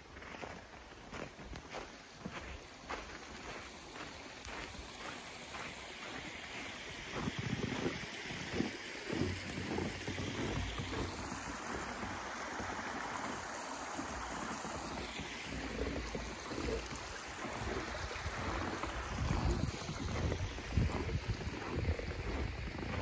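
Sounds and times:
brook running: 0.0s - 23.0s
wind buffeting microphone: 17.5s - 23.0s.

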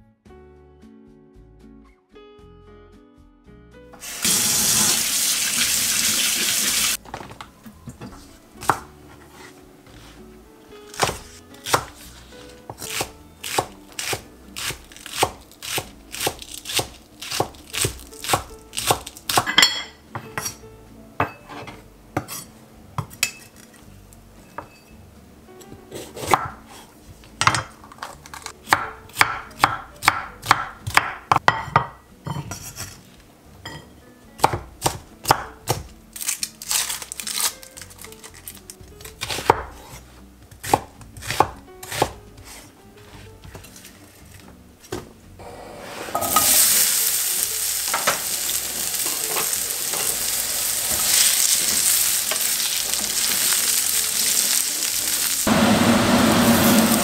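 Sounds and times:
knife chopping on wooden board: 8.6s - 8.9s, 10.9s - 12.0s, 12.7s - 19.6s, 25.9s - 26.7s, 28.7s - 31.9s, 34.4s - 35.9s, 39.2s - 42.7s.

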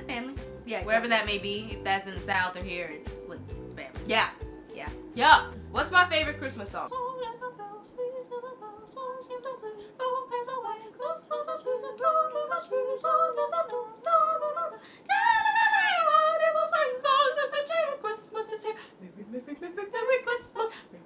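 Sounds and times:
woman singing unaccompanied: 5.2s - 21.0s.

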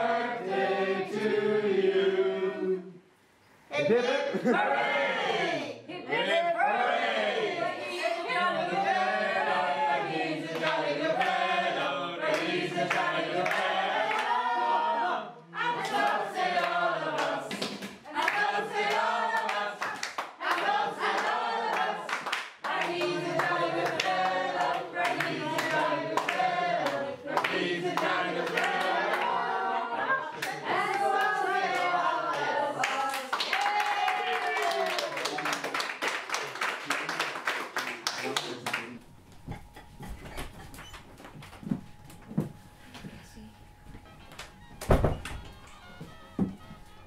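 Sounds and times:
group singing in unison: 0.0s - 3.0s, 4.4s - 33.2s.

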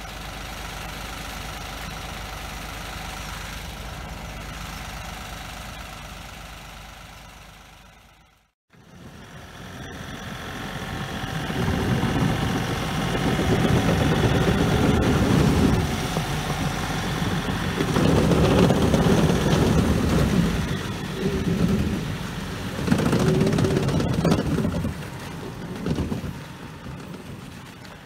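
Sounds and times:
engine running under load: 0.0s - 28.0s
tracks churning water: 10.8s - 28.0s.

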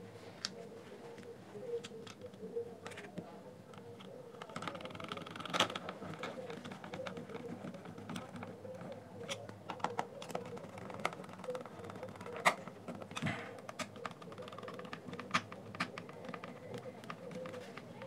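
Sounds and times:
screwdriver clicking on plastic: 4.4s - 18.0s.

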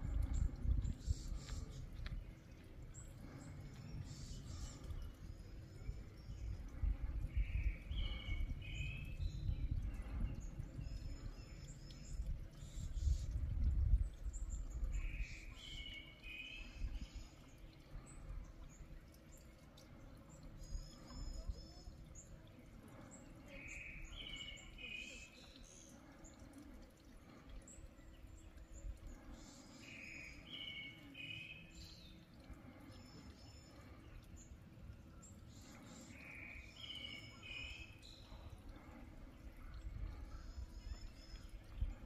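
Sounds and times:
low wind rumble: 0.0s - 15.2s
songbird singing: 0.0s - 42.0s.

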